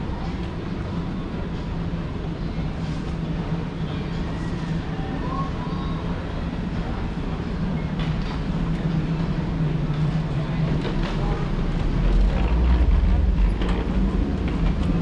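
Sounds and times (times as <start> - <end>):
low mechanical hum: 0.0 - 15.0
rumbling noise: 8.4 - 15.0.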